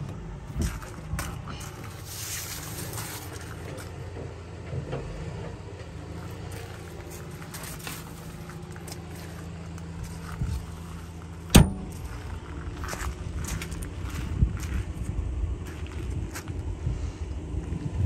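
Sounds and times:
diesel engine idling: 0:00.0 - 0:18.0
sharp knock: 0:11.5 - 0:12.0.

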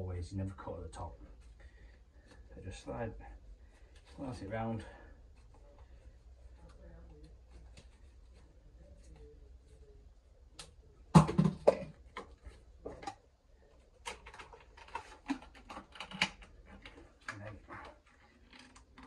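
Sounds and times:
plastic clatter and knocks: 0:11.1 - 0:13.2.

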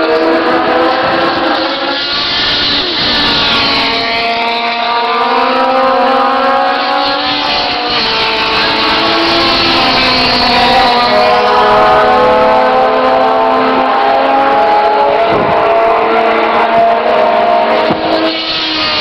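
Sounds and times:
racing car engines at high revs: 0:00.0 - 0:19.0.

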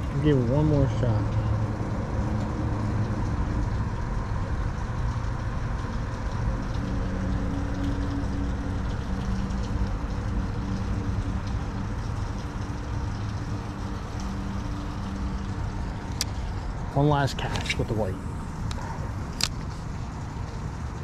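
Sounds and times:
low engine rumble: 0:00.0 - 0:21.0
humming tone: 0:06.1 - 0:16.6.

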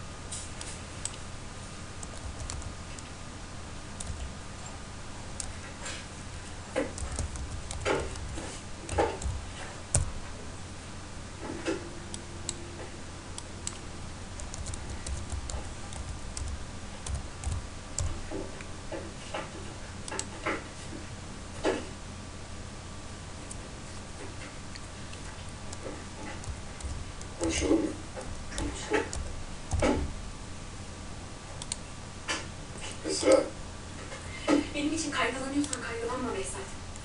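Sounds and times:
low hum: 0:00.0 - 0:33.0
keyboard typing: 0:02.0 - 0:03.1, 0:04.0 - 0:04.8, 0:05.4 - 0:05.8, 0:06.7 - 0:10.3, 0:13.4 - 0:19.0, 0:20.0 - 0:20.6, 0:24.7 - 0:30.1, 0:31.6 - 0:31.8.

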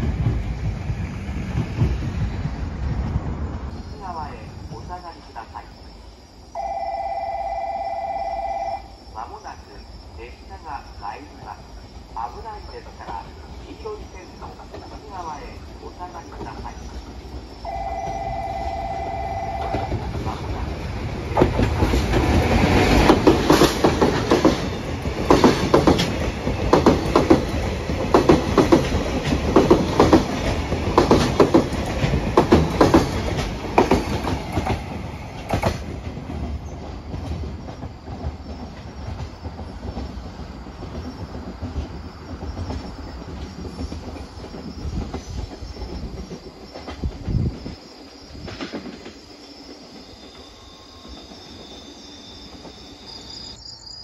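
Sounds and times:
train rumble: 0:00.0 - 0:53.6
locomotive horn blast: 0:17.7 - 0:20.1
train wheels clattering over rail joints: 0:20.0 - 0:47.8.

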